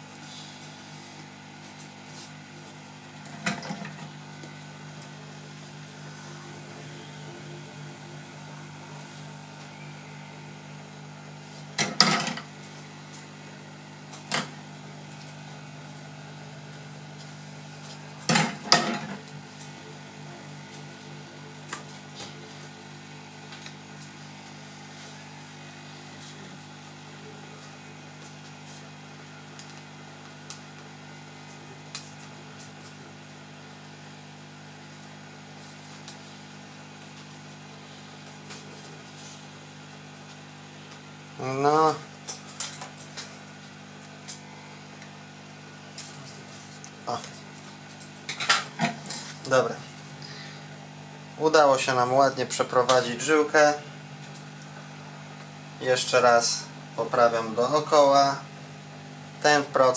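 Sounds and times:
hot air blower humming: 0.0s - 59.9s.

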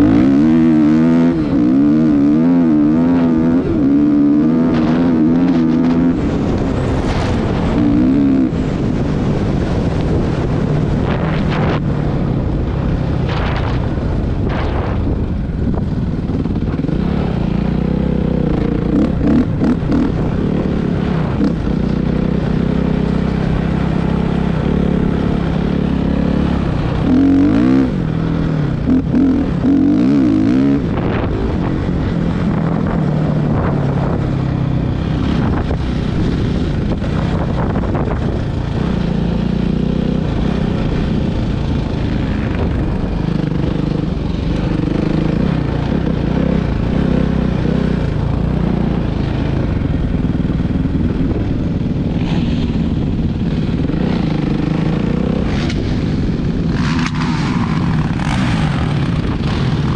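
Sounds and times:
dirt bike engine revving: 0.0s - 11.8s, 16.2s - 34.2s, 34.9s - 59.9s.

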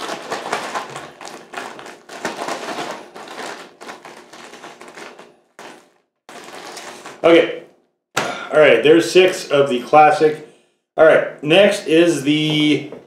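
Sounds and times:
plastic bag crinkling: 0.0s - 7.6s.

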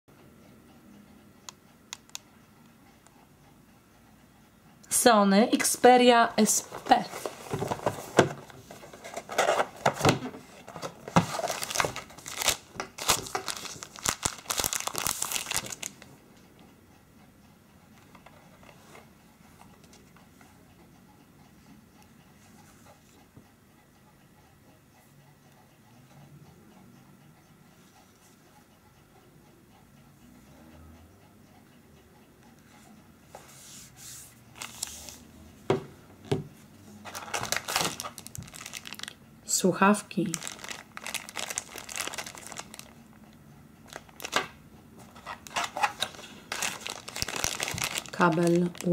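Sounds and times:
cardboard rustling: 6.6s - 15.9s, 45.0s - 48.9s
plastic bag crinkling: 10.7s - 16.1s, 37.1s - 39.2s, 40.2s - 43.0s, 43.9s - 44.5s, 45.2s - 48.9s.

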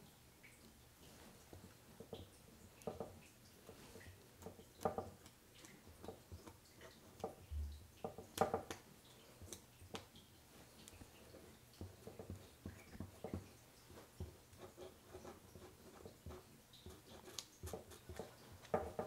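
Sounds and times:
painting tool scraping wax: 11.3s - 19.0s.

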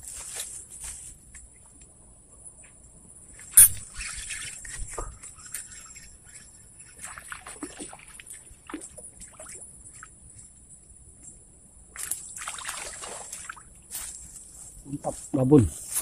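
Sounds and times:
fish splashing in water: 7.0s - 9.6s, 12.0s - 13.7s.

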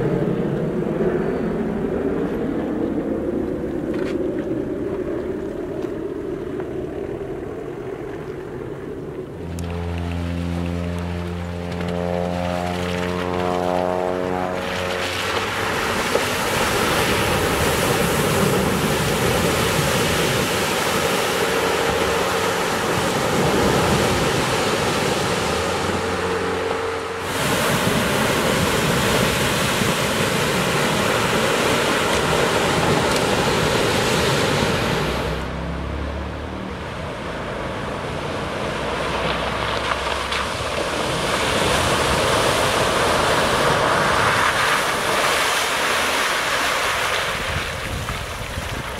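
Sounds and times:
diesel engine running: 0.0s - 44.9s
wind rushing over microphone: 12.6s - 35.8s, 36.6s - 48.9s.

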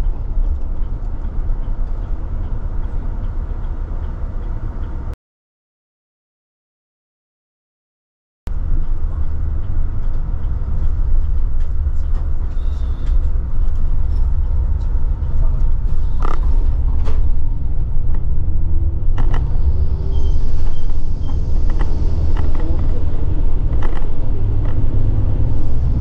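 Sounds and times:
bus engine and road rumble: 0.0s - 5.2s, 8.5s - 26.0s
bus body creaks and knocks: 11.2s - 18.5s.

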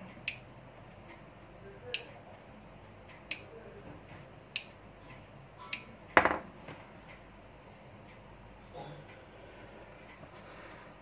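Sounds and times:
rocker switch clicking: 4.5s - 4.8s
loud knock: 6.2s - 6.5s.

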